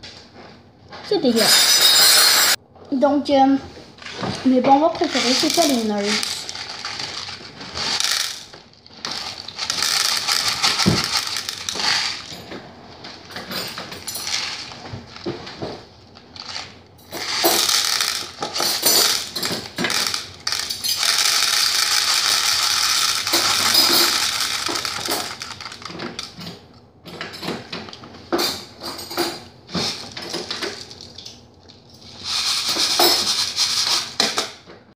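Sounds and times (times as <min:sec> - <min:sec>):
candy box shaking: 0:04.8 - 0:12.4, 0:17.1 - 0:26.3, 0:32.2 - 0:34.2
tiny candies rattling into bowl: 0:04.9 - 0:12.5, 0:13.3 - 0:14.8, 0:16.4 - 0:26.4, 0:32.2 - 0:34.2.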